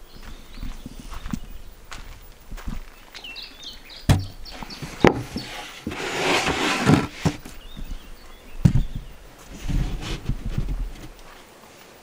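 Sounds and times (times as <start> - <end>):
wood-on-wood knocks: 4.1 - 4.4, 5.0 - 7.4
board scraping across wood: 4.1 - 7.5, 9.4 - 11.2.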